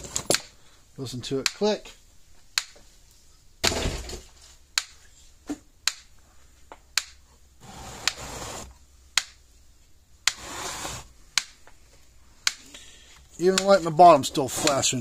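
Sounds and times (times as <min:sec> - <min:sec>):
rustling and scraping of handling: 0:04.1 - 0:06.7, 0:09.5 - 0:15.0
electric fence energizer clicking: 0:14.6 - 0:14.9.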